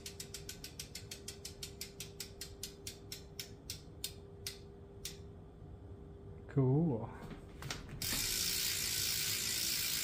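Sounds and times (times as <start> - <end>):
bicycle hub ratchet clicking: 0.0 - 5.2, 8.0 - 10.0.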